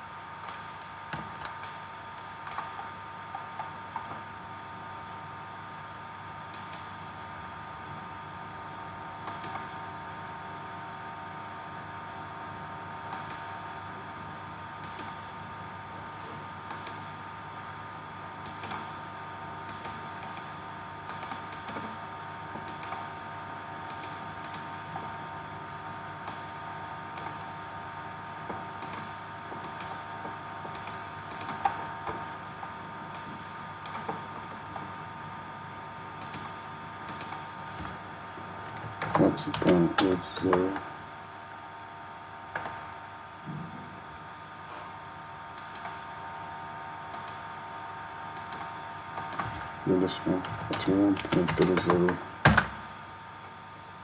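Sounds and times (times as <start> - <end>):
steady background hum: 0.0 - 54.0
computer mouse clicking: 0.4 - 0.7, 1.5 - 4.0, 6.5 - 6.9, 9.2 - 9.7, 13.1 - 13.4, 14.8 - 15.2, 16.7 - 17.0, 18.4 - 18.8, 19.7 - 20.5, 21.1 - 21.8, 22.6 - 23.0, 23.9 - 24.7, 26.2 - 26.4, 27.2 - 27.4, 28.8 - 30.0, 30.7 - 31.8, 33.1 - 34.1, 36.2 - 37.4, 45.6 - 46.0, 47.1 - 47.4, 48.4 - 49.5.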